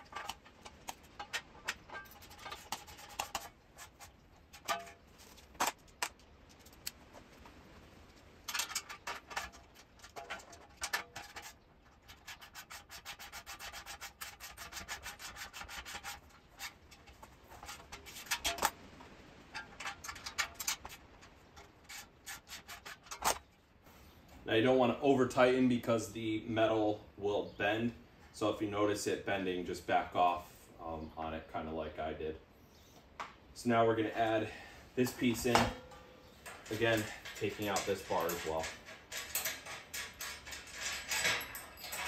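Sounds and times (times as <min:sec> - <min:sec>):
metal clinks: 0:35.1 - 0:42.0.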